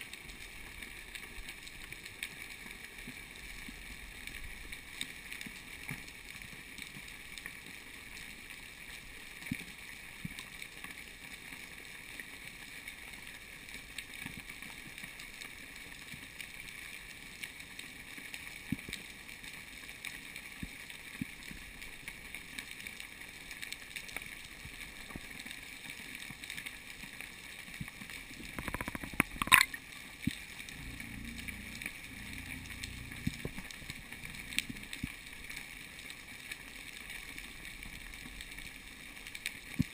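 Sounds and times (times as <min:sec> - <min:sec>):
muffled underwater hiss: 0:00.0 - 0:39.9
small clicks: 0:27.8 - 0:35.6
faint high hum: 0:30.8 - 0:35.0.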